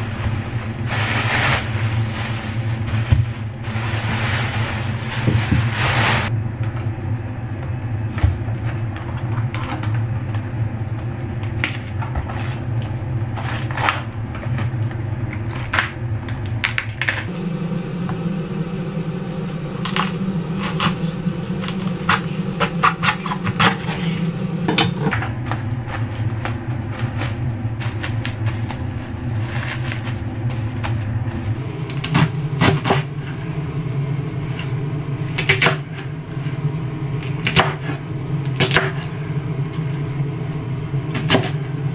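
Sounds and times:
steady low hum: 0:00.0 - 0:41.9
cabbage leaves snapping and crunching: 0:25.4 - 0:31.6.

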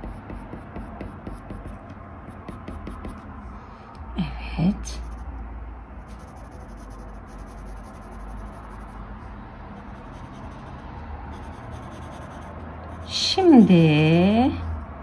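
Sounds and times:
pencil scratching on paper: 0:00.0 - 0:03.3, 0:04.9 - 0:05.3, 0:06.0 - 0:09.0, 0:09.8 - 0:13.9.

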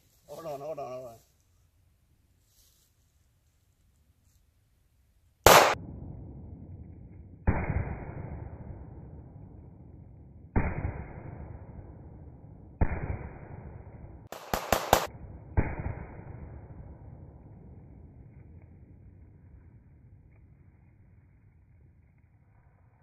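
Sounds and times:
rapid sharp gunshot cracks: 0:05.4 - 0:06.0, 0:07.5 - 0:08.6, 0:10.6 - 0:11.8, 0:12.8 - 0:16.7
handgun shots: 0:05.5 - 0:05.8.

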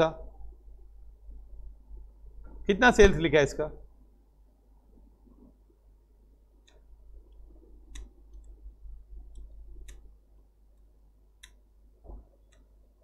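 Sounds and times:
low steady hum: 0:00.0 - 0:13.0
computer keyboard typing: 0:09.3 - 0:10.1.

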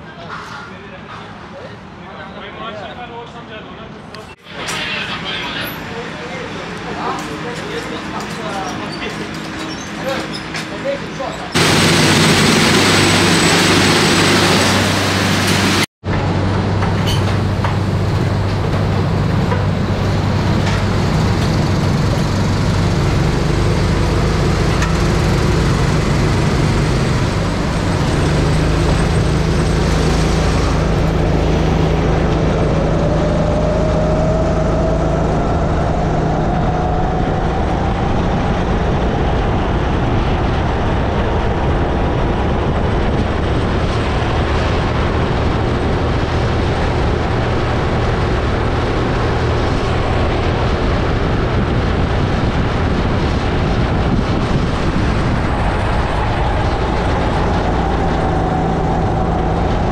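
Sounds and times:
loud rushing noise: 0:11.5 - 0:59.9
kart engine running: 0:11.6 - 0:15.8, 0:17.8 - 0:32.4.

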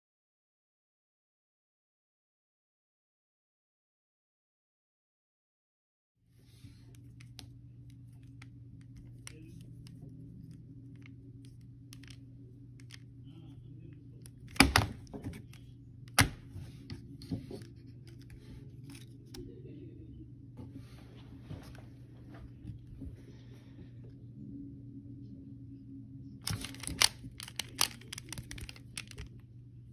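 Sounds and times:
steady low hum: 0:06.3 - 0:29.9
puzzle cube clicking: 0:10.9 - 0:12.2, 0:26.4 - 0:29.3.

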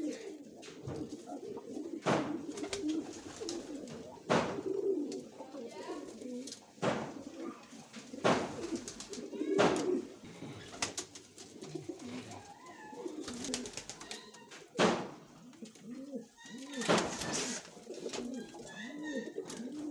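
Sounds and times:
pigeons cooing: 0:00.0 - 0:19.9
wings flapping: 0:02.2 - 0:04.8, 0:08.1 - 0:10.0, 0:10.6 - 0:12.5, 0:13.1 - 0:14.5, 0:16.6 - 0:18.7.

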